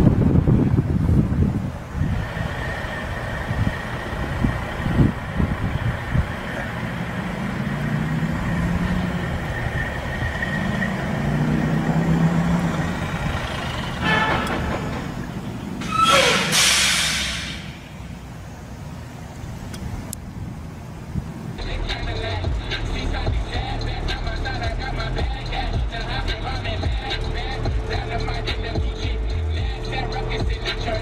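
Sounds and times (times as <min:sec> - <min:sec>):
truck diesel engine droning: 0:00.0 - 0:31.0
loud air hiss with falling tone: 0:15.8 - 0:18.8.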